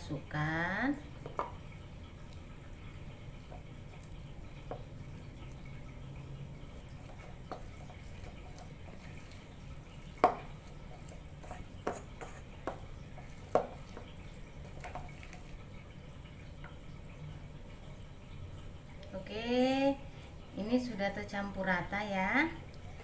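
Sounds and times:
low steady hum: 0.0s - 23.0s
spatula stirring dough in bowl: 0.3s - 16.0s
spatula knocking metal bowl: 10.2s - 10.5s.

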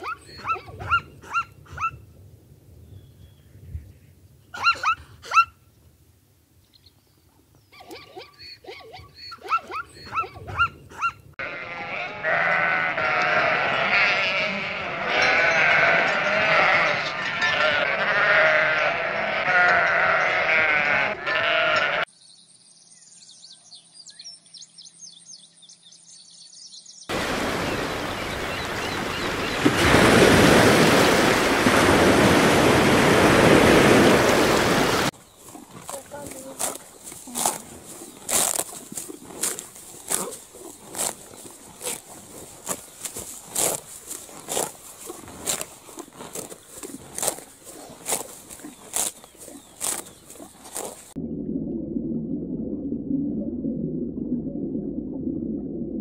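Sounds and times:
zebras barking: 7.9s - 22.0s
sheep bleating: 11.4s - 22.1s.

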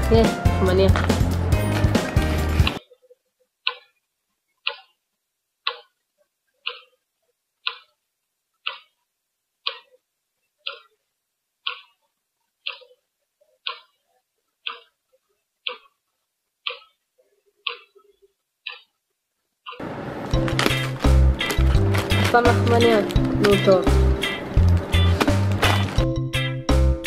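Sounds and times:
clock ticking: 2.6s - 4.0s, 4.6s - 5.0s, 5.6s - 6.0s, 6.6s - 10.0s, 10.6s - 17.0s, 17.6s - 19.0s, 19.6s - 27.0s.

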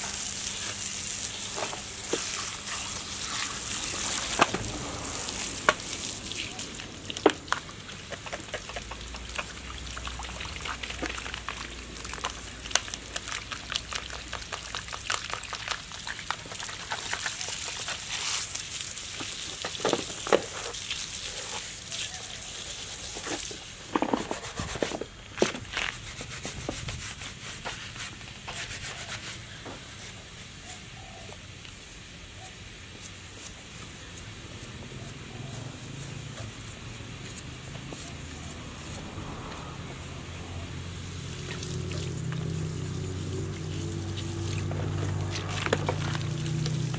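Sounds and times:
hose water spraying: 0.0s - 46.9s.

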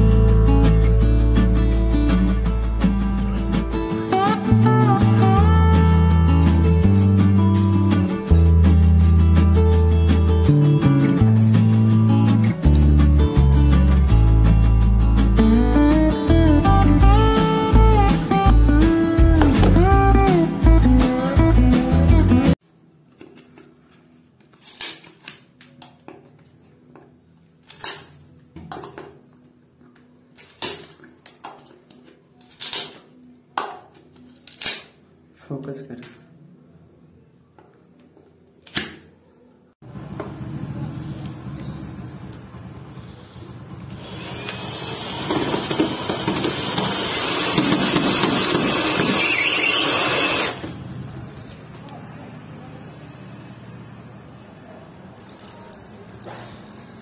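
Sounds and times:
electric drill driving a screw: 43.9s - 50.6s.

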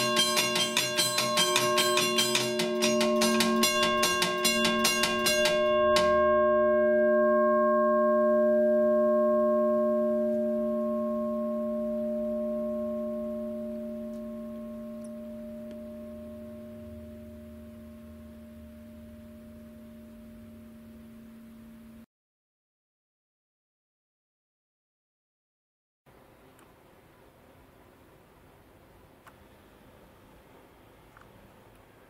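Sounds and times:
railroad crossing bell ringing: 0.0s - 21.2s.

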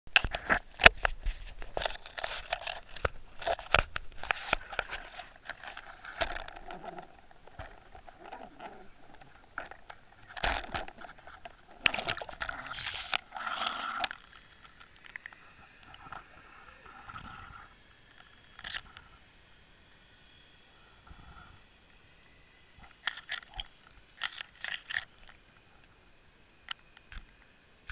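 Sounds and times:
muffled underwater sound: 5.8s - 17.8s.

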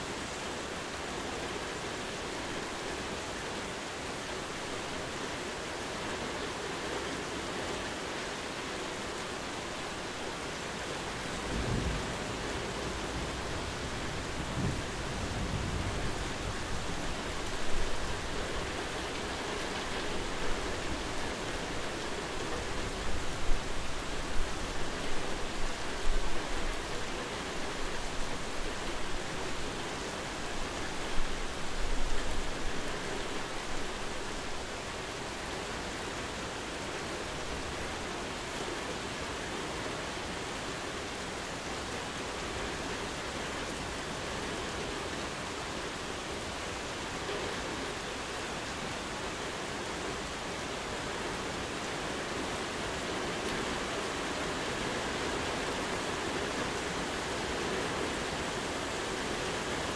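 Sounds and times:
rain falling: 0.0s - 59.9s.

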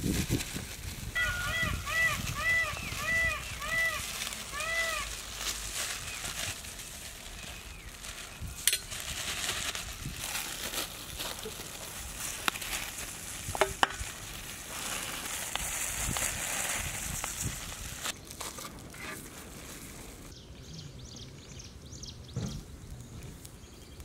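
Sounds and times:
outdoor background: 0.0s - 24.0s
foil bags crinkling: 2.2s - 20.3s.

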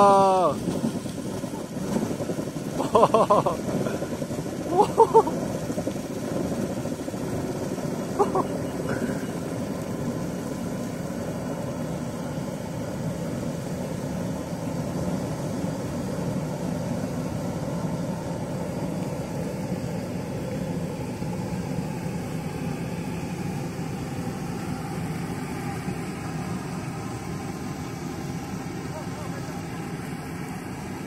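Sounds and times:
geyser water rushing: 0.0s - 31.0s.

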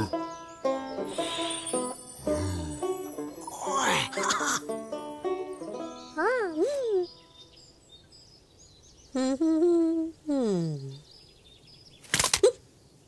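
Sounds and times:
faint birdsong: 0.0s - 13.0s
cartoon character humming: 9.2s - 11.0s.

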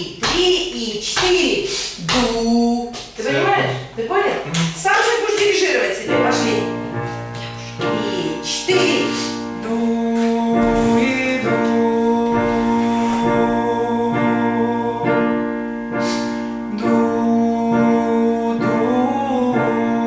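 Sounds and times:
singer breathing: 1.6s - 2.0s, 9.1s - 9.5s, 16.0s - 16.7s
piano accompaniment: 2.1s - 20.0s
man singing long held notes: 7.8s - 20.0s.

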